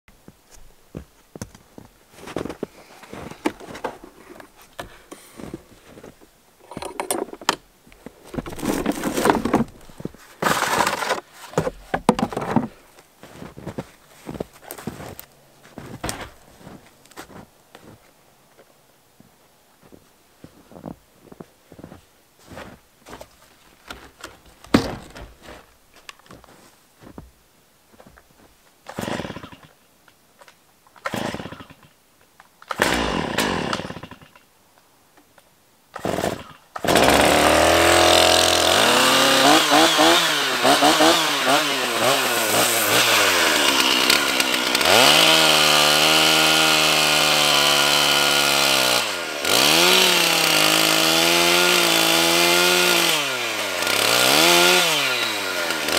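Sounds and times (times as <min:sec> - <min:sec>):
chainsaw pull-cord rips: 0:08.3 - 0:11.3, 0:28.9 - 0:29.7, 0:31.0 - 0:31.9, 0:32.6 - 0:34.4, 0:36.0 - 0:55.9
chainsaw engine revving: 0:08.4 - 0:11.2, 0:28.9 - 0:29.7, 0:31.0 - 0:31.9, 0:32.7 - 0:34.4, 0:36.0 - 0:55.9
handling knocks: 0:24.0 - 0:25.6.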